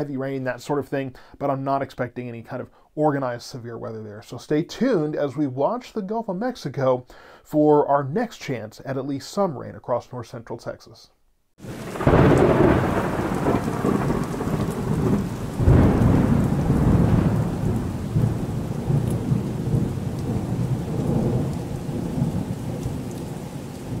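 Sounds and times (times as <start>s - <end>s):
steady rain: 11.6s - 24.0s
thunder rumbling: 11.6s - 24.0s.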